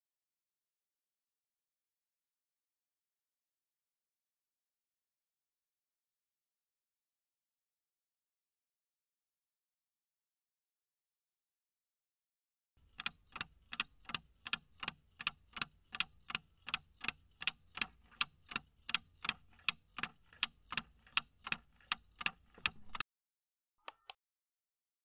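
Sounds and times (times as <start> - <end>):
clock ticking: 12.8 - 23.0.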